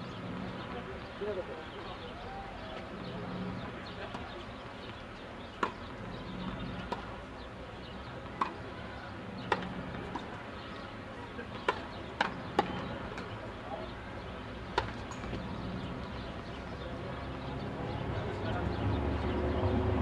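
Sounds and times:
tennis ball bouncing on court: 5.5 - 7.2, 7.9 - 10.5, 11.5 - 13.4, 14.6 - 16.8
tennis ball struck by rackets: 5.5 - 7.2, 8.0 - 10.4, 11.5 - 13.4, 14.6 - 15.5.

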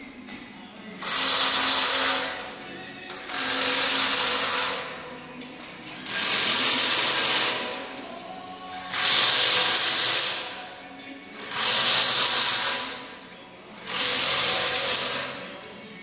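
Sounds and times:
power tool running in bursts: 1.0 - 2.4, 3.3 - 4.8, 6.0 - 7.6, 8.9 - 10.4, 11.4 - 12.9, 13.8 - 15.4.

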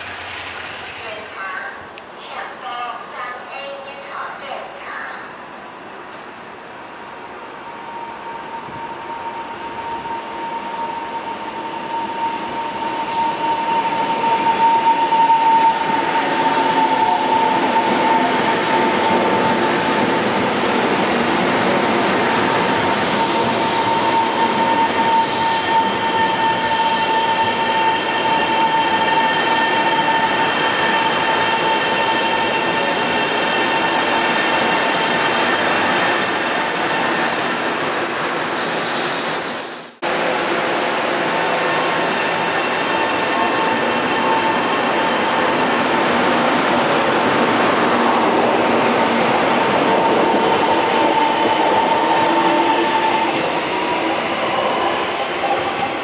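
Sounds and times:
train wheels rumbling and clattering: 0.0 - 1.4
train wheel squeal: 7.6 - 20.1, 22.7 - 40.0, 41.6 - 45.8.

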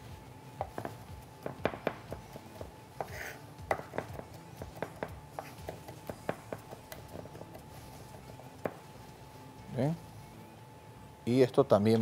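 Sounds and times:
knife scraping board: 3.0 - 3.4
knife chopping on cutting board: 3.0 - 7.6.

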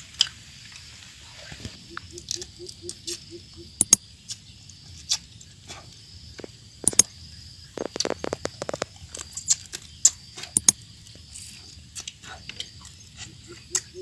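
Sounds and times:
insect chirring: 0.0 - 14.0
crab shells cracking: 7.8 - 9.9.

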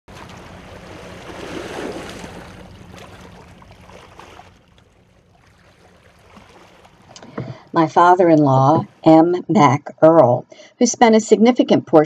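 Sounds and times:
waves washing on rocky shore: 0.1 - 3.4
wind: 0.1 - 7.5
low steady hum: 0.1 - 12.0.

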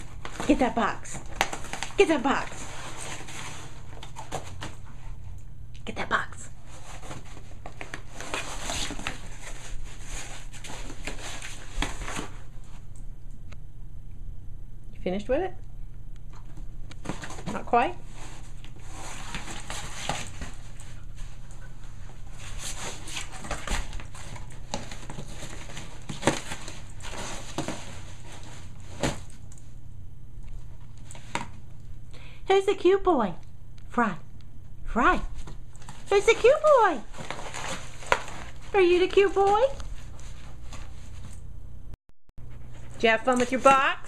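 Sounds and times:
dog tearing cardboard: 18.8 - 20.6, 22.3 - 29.2, 35.8 - 38.6.

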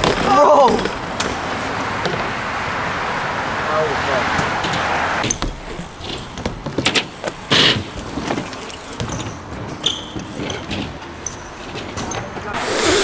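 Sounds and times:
bike tyres rolling on ramps: 0.0 - 13.0
knocks and clatter: 4.3 - 12.5.

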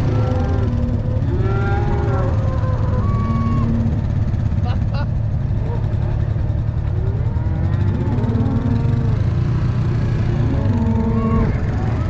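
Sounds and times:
cattle mooing: 0.0 - 4.0, 7.0 - 12.0
motorcycle engine rumbling: 0.0 - 12.0.

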